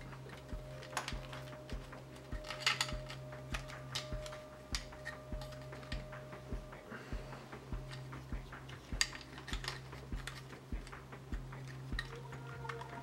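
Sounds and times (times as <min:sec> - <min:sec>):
ribbon cables rustling: 0:00.0 - 0:06.8
steady low hum: 0:00.0 - 0:13.0.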